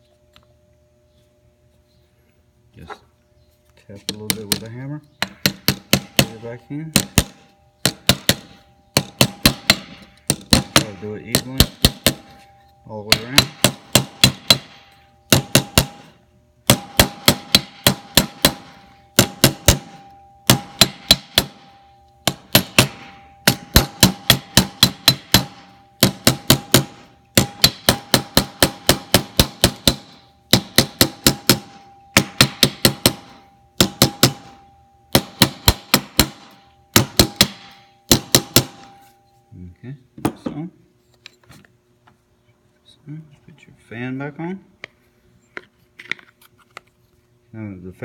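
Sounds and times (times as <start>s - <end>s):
hammer tapping metal bearing: 4.0s - 39.0s
metal ringing: 4.1s - 39.6s.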